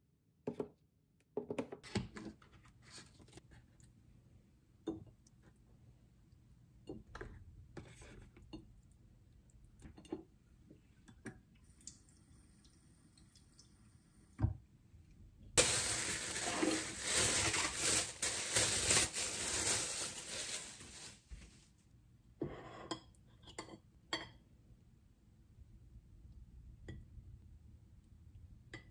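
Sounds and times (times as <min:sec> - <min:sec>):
tap water running: 0:15.6 - 0:21.0.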